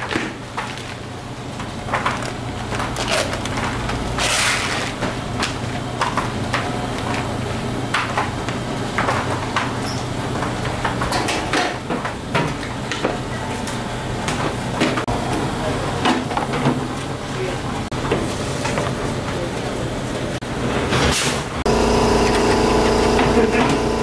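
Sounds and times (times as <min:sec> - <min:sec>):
utensils and containers clattering: 0:00.0 - 0:15.1.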